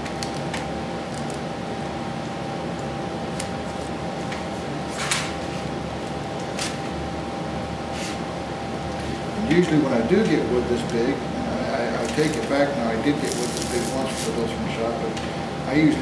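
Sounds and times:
room hum: 0.0s - 16.0s
scrapes and rustles of twine: 13.2s - 14.4s.

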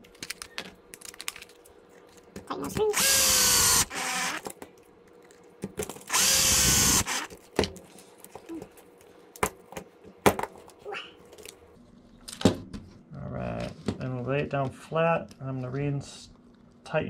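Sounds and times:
electric screwdriver running: 2.9s - 4.4s, 6.1s - 7.3s.

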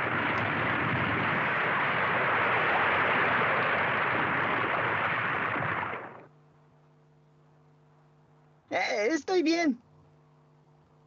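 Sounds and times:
cartoon avalanche rush: 0.0s - 6.3s.

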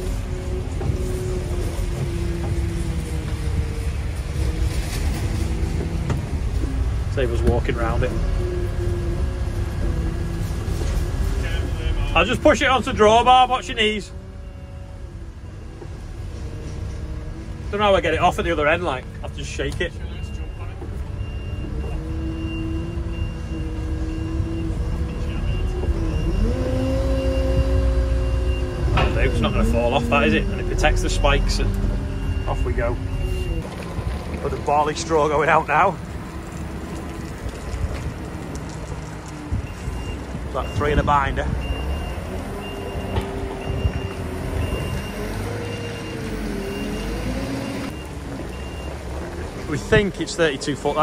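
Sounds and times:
diesel engine running under load: 0.0s - 51.0s
reversing alarm beeping: 11.6s - 16.6s, 19.9s - 33.6s, 39.6s - 49.0s.

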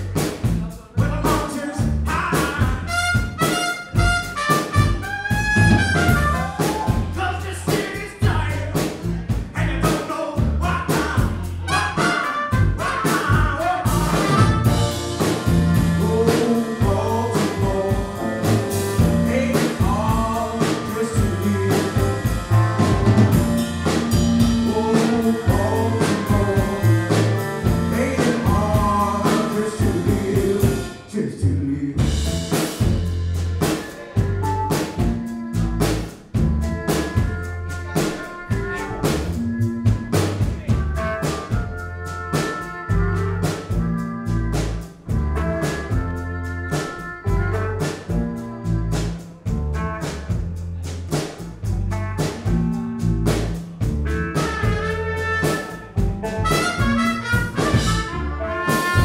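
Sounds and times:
man singing: 0.0s - 3.6s, 5.8s - 32.8s
live band playing: 0.0s - 31.1s, 31.9s - 59.0s
drum hits: 1.3s - 30.9s, 32.0s - 41.8s, 49.4s - 59.0s.

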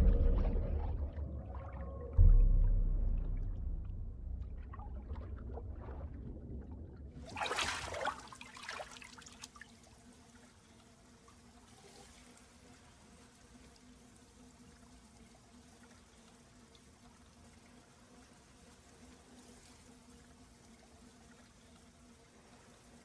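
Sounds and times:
muffled underwater rumble: 0.0s - 7.2s
low steady hum: 0.0s - 8.8s
water splashing: 0.0s - 9.8s
water trickling: 0.8s - 23.0s
deep thud: 2.2s - 5.8s.

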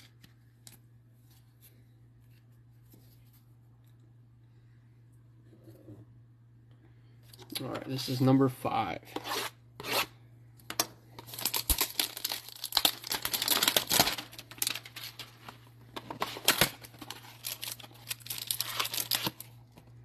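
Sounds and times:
cardboard crinkling and tearing: 11.2s - 19.6s.

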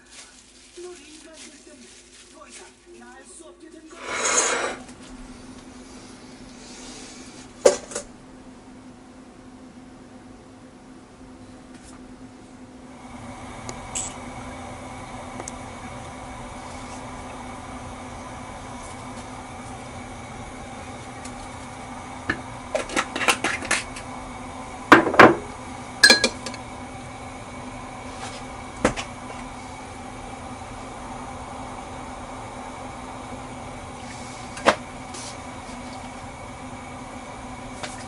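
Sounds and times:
steady low hum: 0.0s - 38.0s
metal spoon clinking ceramic cup: 26.0s - 26.5s.

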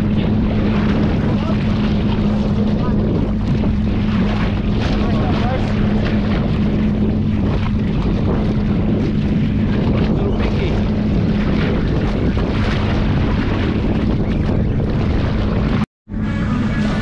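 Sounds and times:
boat motor idling: 0.0s - 17.0s
water noise: 0.0s - 17.0s
wind buffeting microphone: 0.0s - 17.0s.

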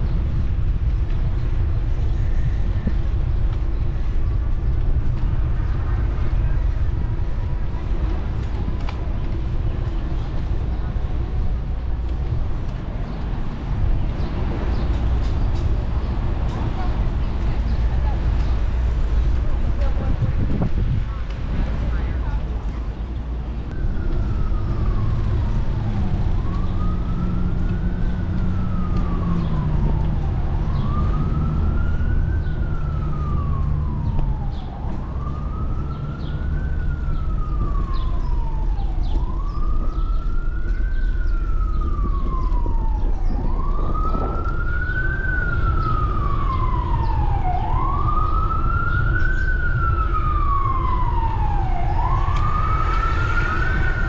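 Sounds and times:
emergency siren wailing: 23.1s - 54.0s.

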